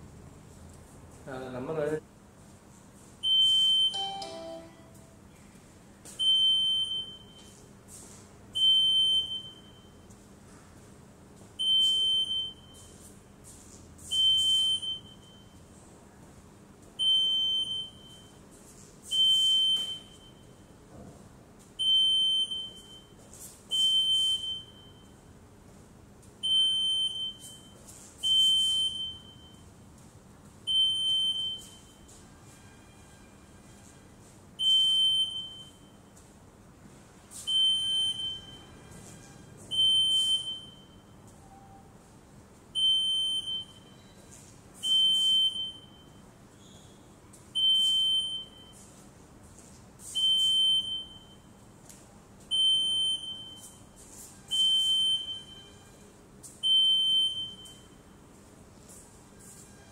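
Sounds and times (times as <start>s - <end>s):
metal detector alarm beep: 3.2s - 4.6s, 6.2s - 7.5s, 8.6s - 9.9s, 11.6s - 12.9s, 14.1s - 15.6s, 17.0s - 18.4s, 19.1s - 20.5s, 21.8s - 23.1s, 23.7s - 25.1s, 26.4s - 29.6s, 30.7s - 32.1s, 34.6s - 36.0s, 37.5s - 38.7s, 39.7s - 41.9s, 42.8s - 46.2s, 47.6s - 48.8s, 50.2s - 51.5s, 52.5s - 53.8s, 54.5s - 55.9s, 56.6s - 58.1s.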